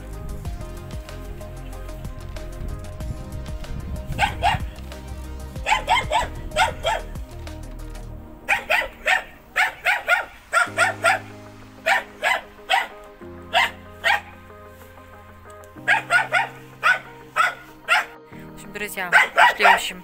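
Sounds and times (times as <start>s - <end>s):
slow held chords music: 0.0s - 20.0s
dog barking: 4.1s - 4.8s, 5.6s - 7.1s, 8.4s - 14.4s, 15.8s - 18.2s, 19.1s - 20.0s.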